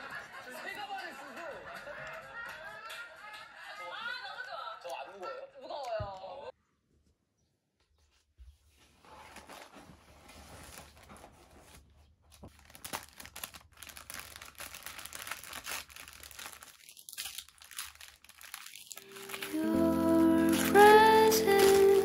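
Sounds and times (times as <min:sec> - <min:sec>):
tissue paper crinkling: 0:08.7 - 0:22.0.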